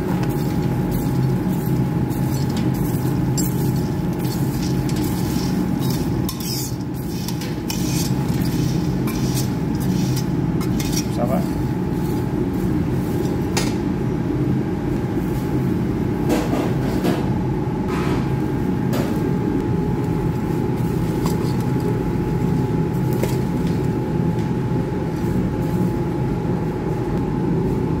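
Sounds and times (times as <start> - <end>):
metal spoon stirring popcorn in pan: 0.2 - 11.3.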